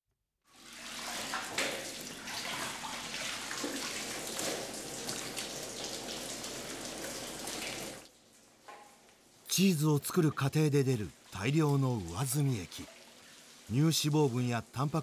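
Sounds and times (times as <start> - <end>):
whey splashing and dripping: 11.2 - 15.0.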